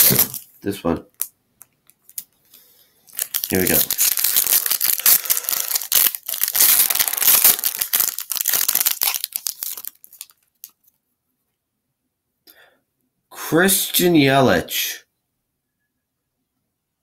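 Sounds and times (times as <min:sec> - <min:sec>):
foil wrapper tearing and crinkling: 0:00.0 - 0:00.5, 0:01.9 - 0:02.3, 0:03.1 - 0:10.8.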